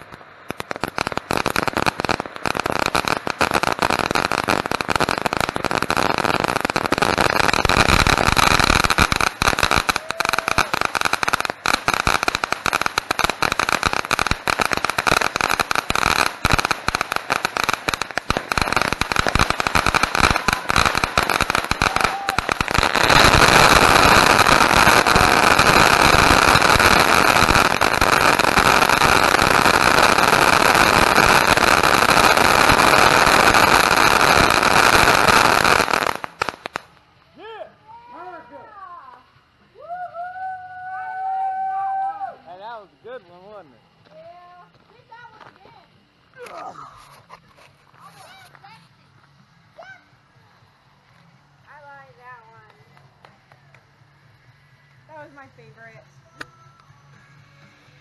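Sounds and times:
hissing spray of sparks: 0:00.0 - 0:37.0
fireworks crackling pops: 0:00.0 - 0:58.0.

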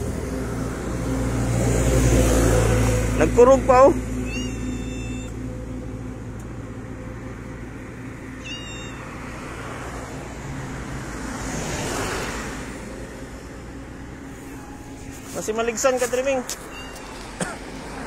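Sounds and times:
low hum of road traffic: 0:00.0 - 0:18.0
cat mewing: 0:04.2 - 0:05.4, 0:08.4 - 0:09.4, 0:16.6 - 0:17.4.

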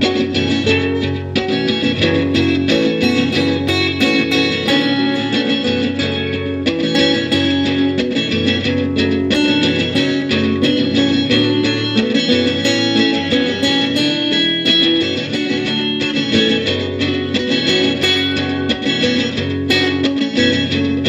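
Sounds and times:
plucked guitar notes: 0:00.0 - 0:21.0.

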